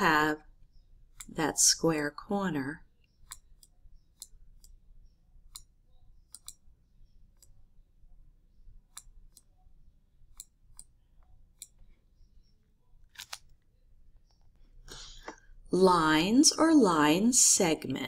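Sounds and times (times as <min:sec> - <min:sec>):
computer mouse clicking: 0:03.2 - 0:04.8, 0:05.5 - 0:05.7, 0:06.3 - 0:06.7, 0:07.3 - 0:07.6, 0:08.9 - 0:09.6, 0:10.3 - 0:11.8.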